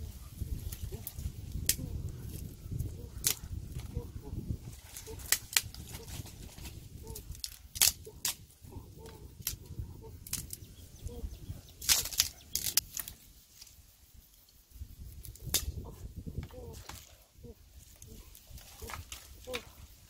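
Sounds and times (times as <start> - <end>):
dry sticks snapping: 0.6 - 3.9, 4.6 - 10.7, 11.8 - 13.7, 15.1 - 17.2, 17.8 - 19.9.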